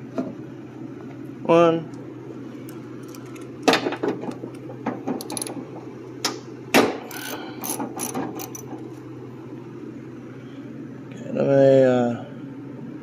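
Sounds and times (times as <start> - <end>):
socket ratchet clicking: 5.2 - 5.6, 7.0 - 8.7.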